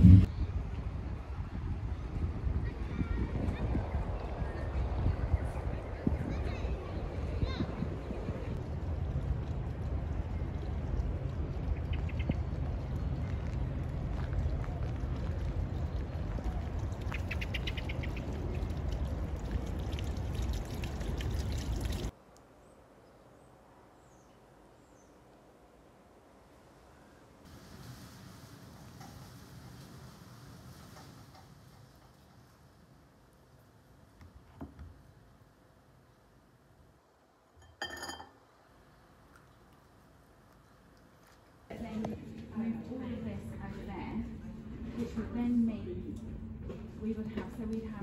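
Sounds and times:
low rumble and hiss: 0.0 - 34.3, 34.9 - 48.0
bird chirping: 17.1 - 18.4
ringing clink: 37.6 - 38.4.

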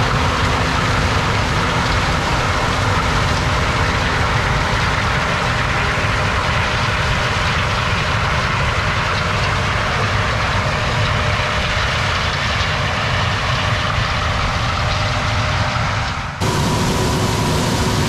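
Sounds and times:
combine harvester drone: 0.0 - 18.0.

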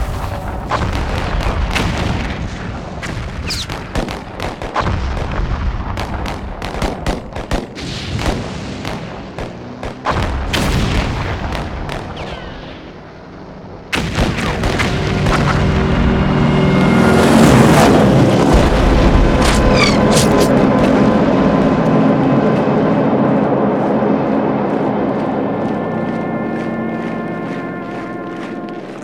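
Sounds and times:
artillery booms: 0.0 - 13.1, 13.9 - 22.9
gunshots: 0.0 - 29.0
sustained steady tones: 11.2 - 29.0
falling whistles: 19.6 - 20.4.

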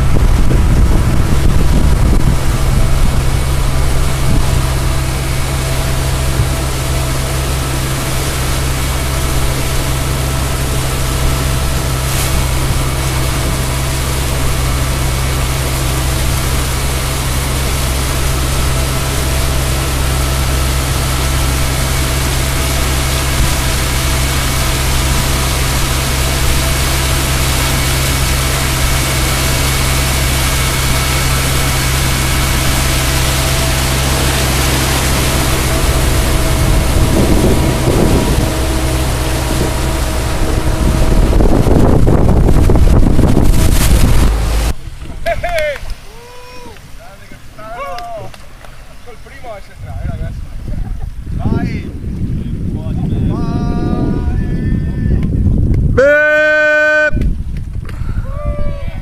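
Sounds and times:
wind buffeting microphone: 0.0 - 45.5, 49.4 - 56.3, 57.1 - 59.0
motorboat engine running: 0.0 - 59.0
water rushing past hull: 0.0 - 59.0.

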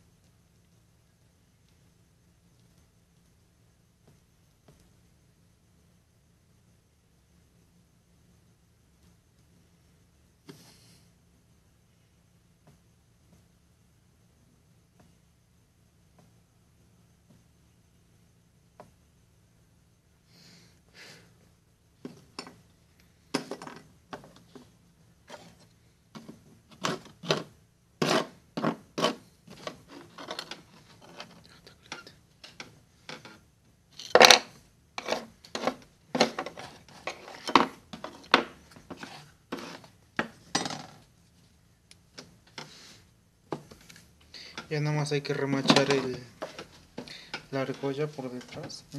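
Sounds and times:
metal pieces clinking on wood: 34.0 - 35.2.

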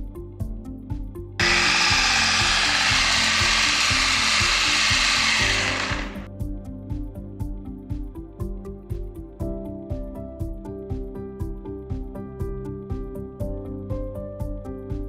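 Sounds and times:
background music: 0.0 - 15.0
loud mechanical whirring: 1.4 - 6.3.

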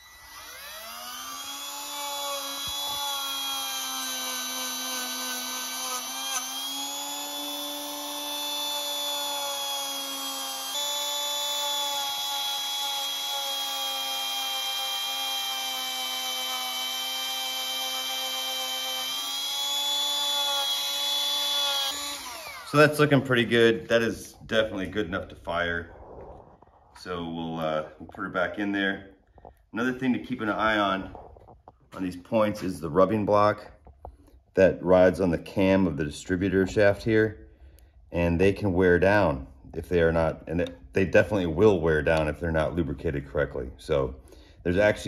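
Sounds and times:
rotary tool motor whine: 0.0 - 22.9.

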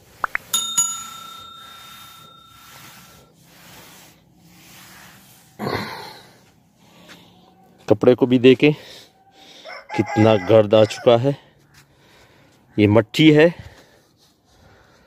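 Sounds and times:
metallic bell-like ring: 0.4 - 3.4.

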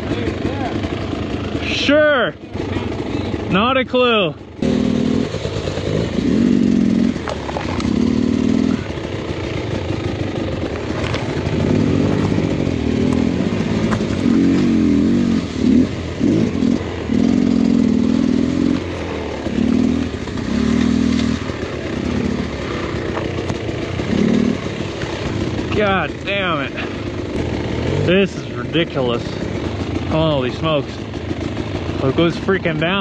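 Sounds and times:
dirt bike engine revving: 0.0 - 33.0
branches scraping and snapping: 7.2 - 8.0, 10.8 - 14.8, 20.7 - 21.6.

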